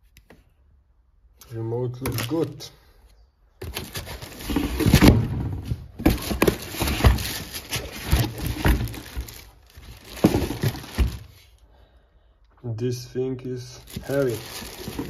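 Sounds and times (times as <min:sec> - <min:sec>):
knocks and thuds: 0:03.6 - 0:11.3
plastic wrap rustling: 0:03.6 - 0:11.6, 0:13.8 - 0:15.0.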